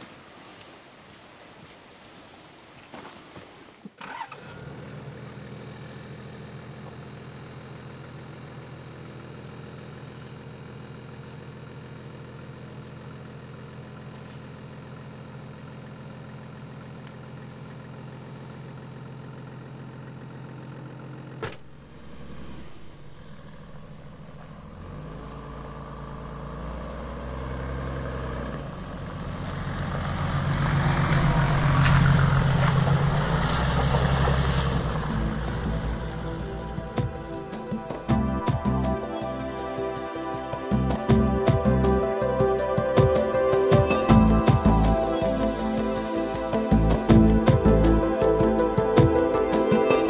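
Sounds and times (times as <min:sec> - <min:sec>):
suv engine: 0:03.9 - 0:50.0
tyres on gravel: 0:28.1 - 0:38.7.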